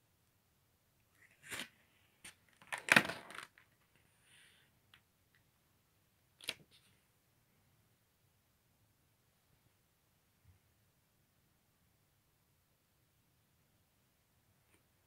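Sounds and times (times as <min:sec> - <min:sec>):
paper pages rustling: 0:01.2 - 0:04.0.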